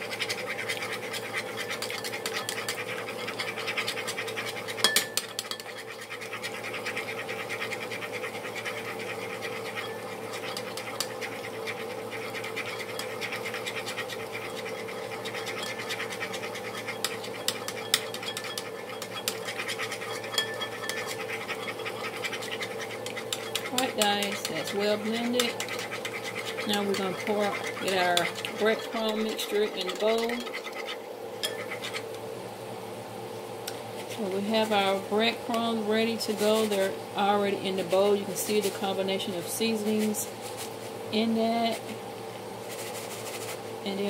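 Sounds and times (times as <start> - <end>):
eggs whisked in bowl: 0.0 - 32.4, 33.7 - 44.0
steady hum: 0.0 - 44.0
utensil knocking bowl: 23.0 - 30.5.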